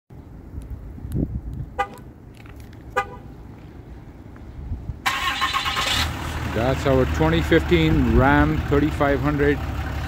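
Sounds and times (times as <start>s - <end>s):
steady low rumble: 0.1s - 10.0s
truck horn chirps: 1.8s - 2.1s, 2.9s - 3.3s.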